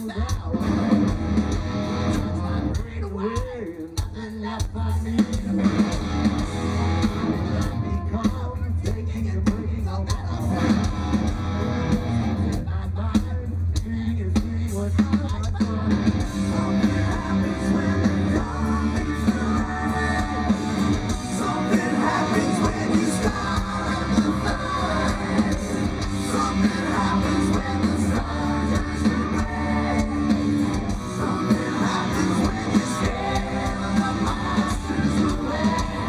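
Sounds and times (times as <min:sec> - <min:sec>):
hard rock band playing: 0:00.0 - 0:36.0
person singing: 0:12.5 - 0:36.0.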